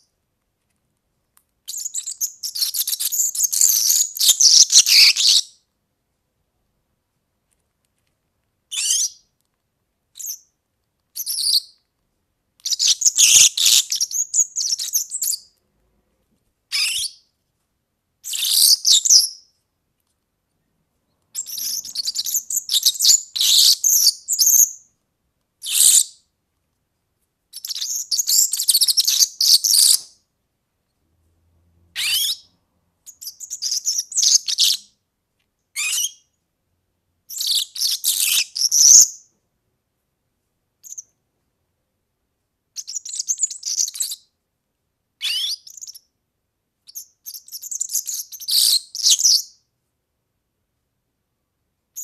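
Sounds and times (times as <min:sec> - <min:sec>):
small bird singing: 0:01.6 - 0:05.7, 0:08.7 - 0:09.3, 0:10.1 - 0:11.9, 0:12.6 - 0:15.6, 0:16.7 - 0:17.3, 0:18.2 - 0:19.6, 0:21.1 - 0:24.9, 0:25.6 - 0:26.3, 0:27.5 - 0:30.2, 0:32.0 - 0:35.0, 0:35.7 - 0:36.4, 0:37.3 - 0:39.4, 0:40.8 - 0:41.2, 0:42.7 - 0:44.4, 0:45.2 - 0:46.2, 0:46.8 - 0:49.7.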